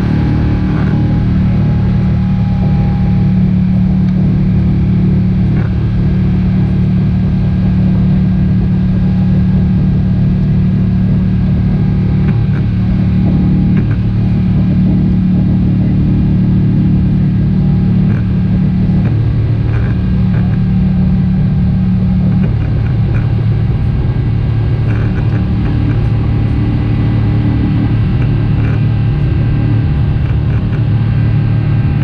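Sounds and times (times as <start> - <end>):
jet engine cabin rumble: 0.0 - 32.0.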